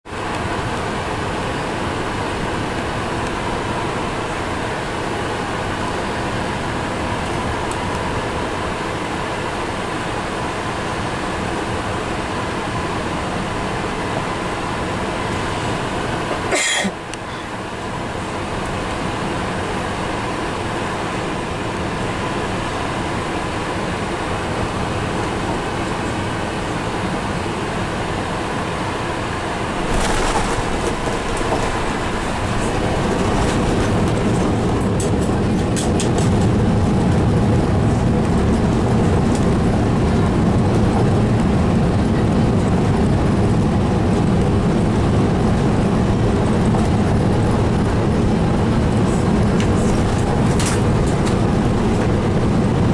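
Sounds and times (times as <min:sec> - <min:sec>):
wheels rumbling on runway: 0:00.0 - 0:52.9
airplane cabin airflow and engine noise: 0:00.1 - 0:52.9
landing gear touchdown jolt: 0:29.8 - 0:34.1.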